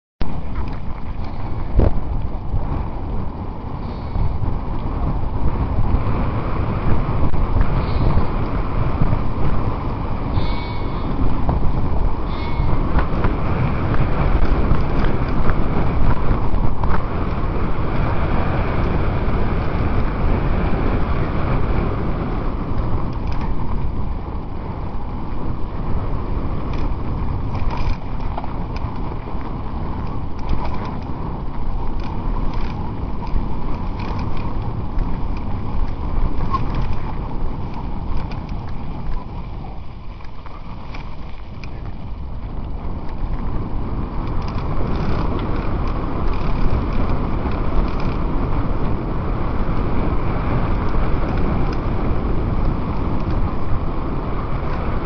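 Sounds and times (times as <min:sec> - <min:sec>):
bike tyres rumbling and rattling: 0:00.2 - 0:55.0
wind noise on microphone: 0:00.2 - 0:55.0
short high squeals: 0:10.3 - 0:11.2.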